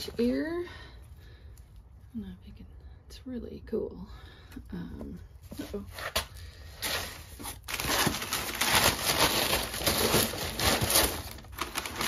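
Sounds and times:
paper and cardboard rustling: 5.5 - 12.0.

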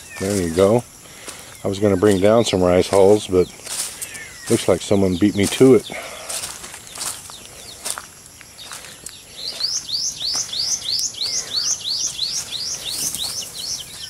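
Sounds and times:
chick peeping: 8.6 - 14.0.

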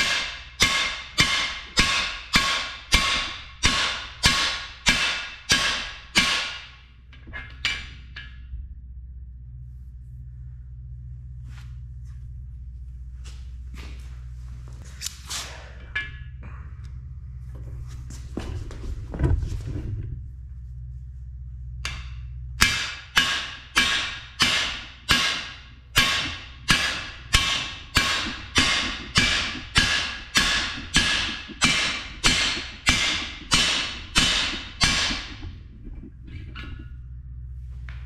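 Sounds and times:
hammer striking metal bar: 0.0 - 8.4, 21.8 - 35.5.

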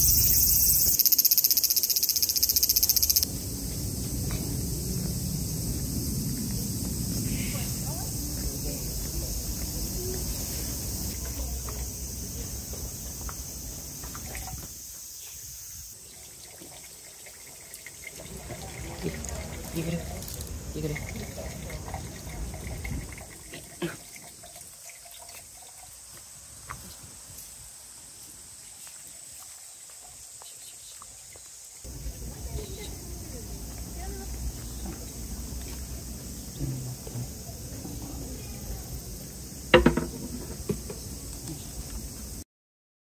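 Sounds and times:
high-pitched insect drone: 0.0 - 16.1, 28.9 - 42.4
low rumble: 3.2 - 10.4
water trickling: 7.9 - 26.6
small knock: 39.7 - 41.1.

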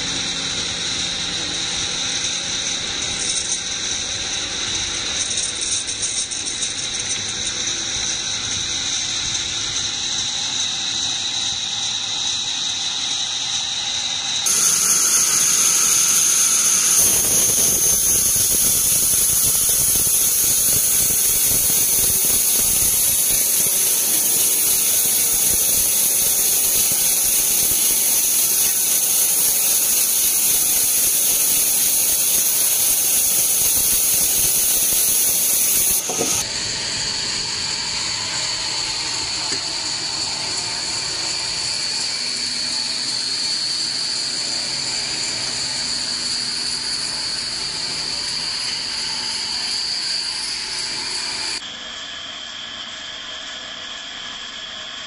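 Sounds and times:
saw running high whine: 0.0 - 55.0
band saw squealing through log: 7.6 - 51.6.

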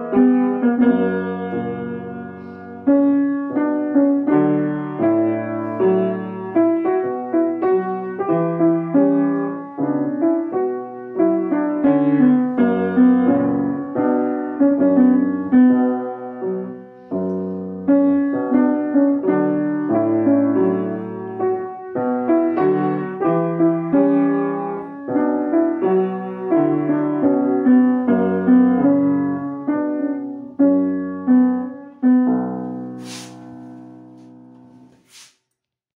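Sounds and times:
solo piano music: 0.0 - 34.9.

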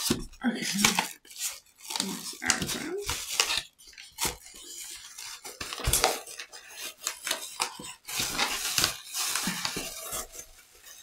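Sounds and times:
polystyrene foam rustling and crackling: 0.0 - 11.0.

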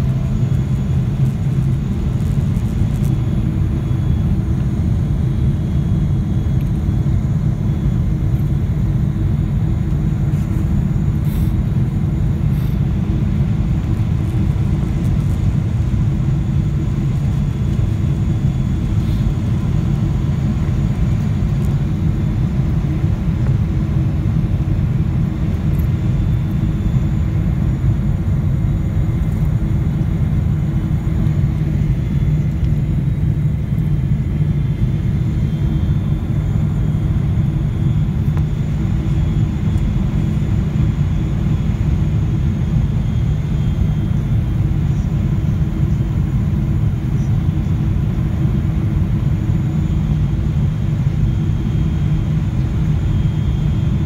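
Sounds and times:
faint steady hum: 0.0 - 54.0
jet engines and airflow rumble: 0.0 - 54.0.

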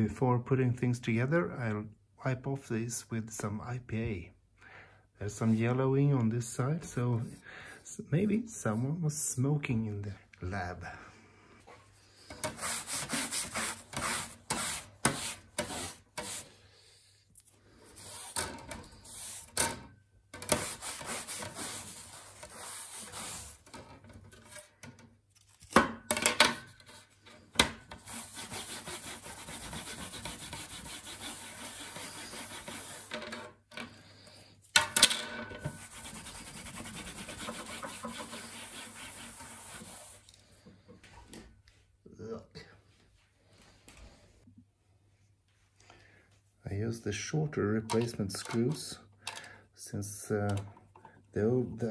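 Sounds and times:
cloth rubbing sheet metal: 12.3 - 16.6, 17.7 - 19.8, 20.4 - 24.8, 26.6 - 33.5, 35.6 - 40.3.

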